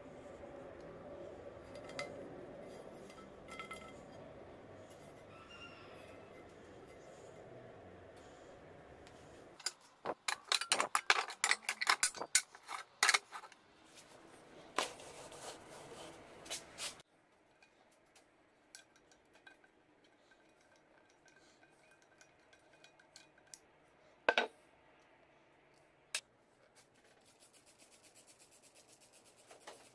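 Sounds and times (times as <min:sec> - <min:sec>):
screwdriver clicks and scrapes: 0:09.6 - 0:13.6.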